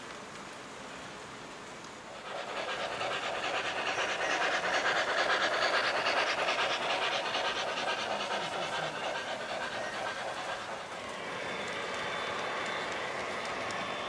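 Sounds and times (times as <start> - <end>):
wheels rolling on track: 1.6 - 14.0
model steam locomotive chuffing: 2.1 - 14.0.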